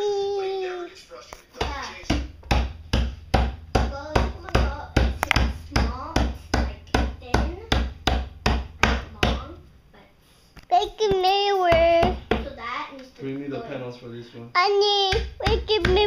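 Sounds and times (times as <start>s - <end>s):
heavy thumps: 1.6s - 9.8s, 10.7s - 12.6s, 15.1s - 16.0s.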